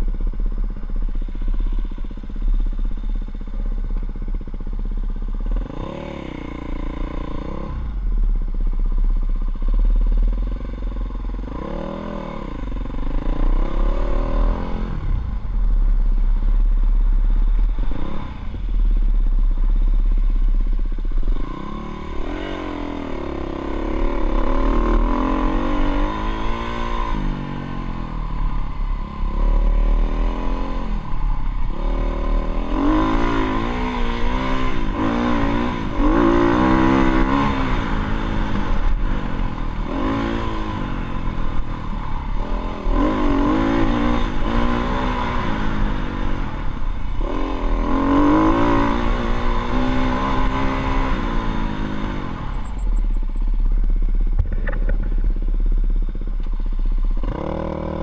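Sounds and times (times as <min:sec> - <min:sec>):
dirt bike engine revving: 0:21.2 - 0:53.4, 0:57.2 - 0:58.0.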